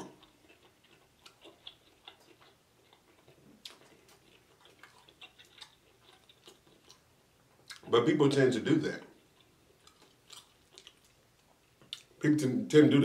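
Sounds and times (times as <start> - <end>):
eating mouth sounds: 0.0 - 8.0.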